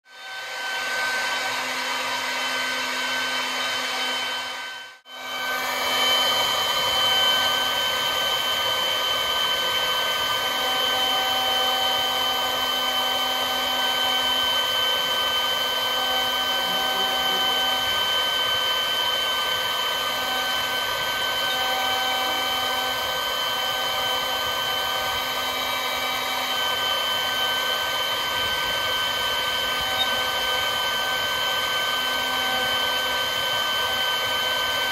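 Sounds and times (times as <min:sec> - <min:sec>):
router spindle high whine: 0:00.1 - 0:34.9
bit cutting wood: 0:10.4 - 0:33.1.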